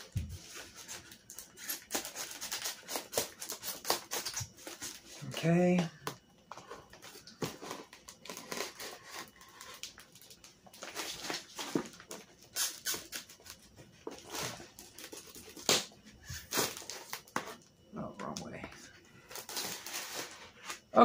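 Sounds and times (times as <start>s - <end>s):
knife cutting packaging tape: 1.3s - 5.0s, 7.4s - 9.8s, 12.5s - 13.4s, 14.2s - 17.5s, 19.3s - 20.4s
packaging rustling: 6.5s - 17.5s.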